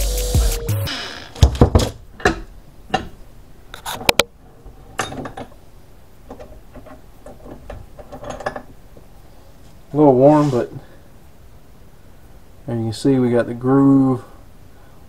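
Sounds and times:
sharp metal knocks: 0.9s - 3.2s
metal vise clanking and clicking: 1.7s - 3.2s, 4.9s - 5.6s, 6.3s - 8.7s.

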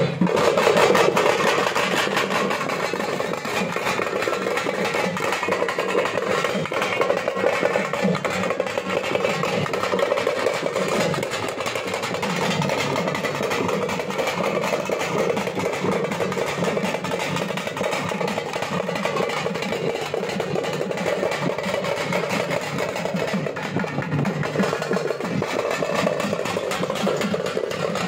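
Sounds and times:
frame drums beaten with sticks: 0.0s - 28.0s.

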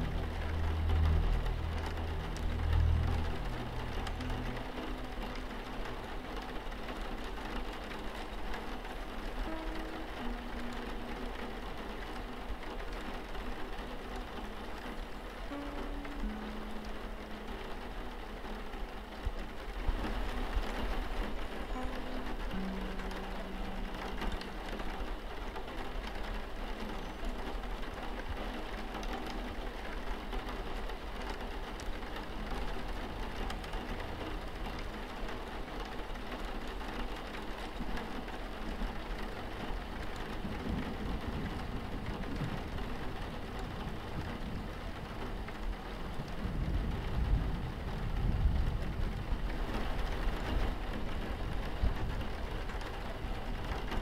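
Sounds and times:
low rumble: 0.0s - 6.6s, 39.8s - 53.7s
rain on a window: 0.0s - 54.0s.

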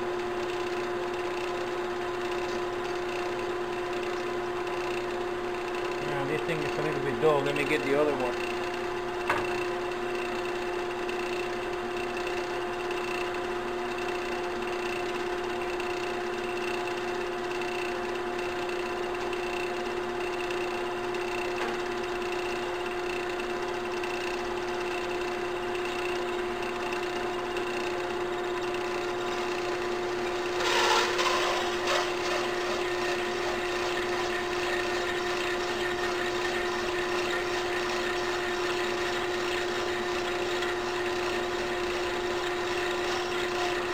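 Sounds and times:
cutter scraping spinning metal: 0.0s - 8.8s, 25.8s - 43.9s
lathe motor whine: 0.0s - 43.9s.

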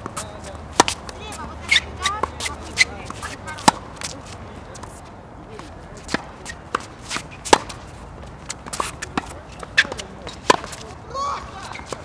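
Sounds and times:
tennis ball bouncing on hard court: 0.0s - 4.9s, 5.6s - 10.9s
tennis ball struck by racket: 0.0s - 4.9s, 6.0s - 7.9s, 8.5s - 10.9s.

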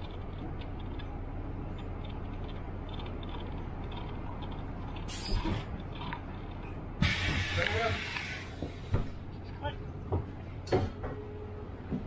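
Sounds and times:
bus engine idling: 0.0s - 12.0s
air brakes hissing: 7.0s - 9.2s.

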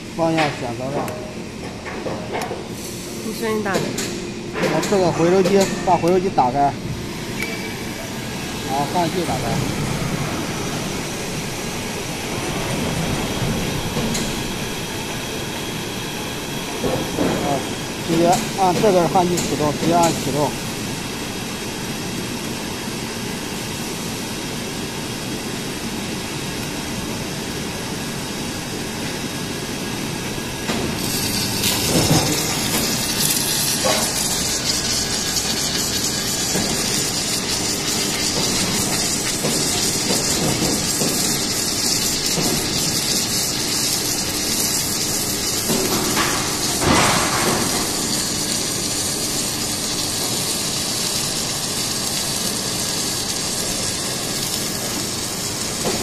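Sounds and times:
steady machine noise: 0.0s - 56.0s
welding hiss: 4.8s - 22.5s, 30.6s - 56.0s.

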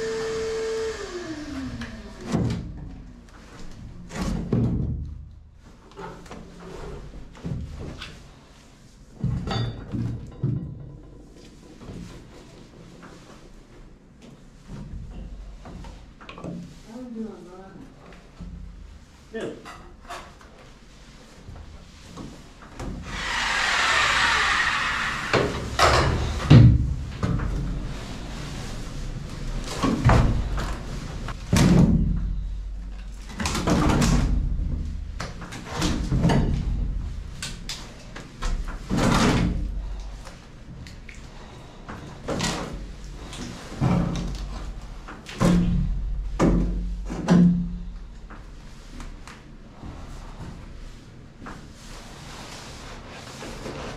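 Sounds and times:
reciprocating saw cutting wood: 23.0s - 25.6s.

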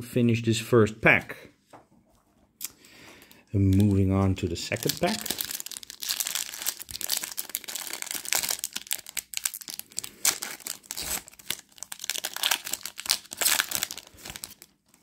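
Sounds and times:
foil wrapper tearing and crinkling: 4.6s - 15.0s.

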